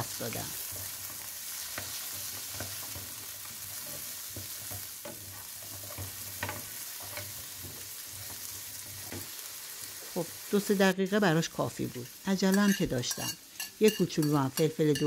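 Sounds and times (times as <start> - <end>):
food sizzling in oil: 0.0 - 15.0
spatula scraping and tapping pan: 0.6 - 9.4, 12.0 - 15.0.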